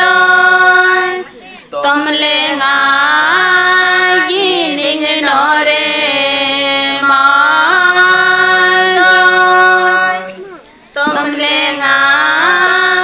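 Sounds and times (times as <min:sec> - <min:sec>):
women singing slow melody: 0:00.0 - 0:13.0.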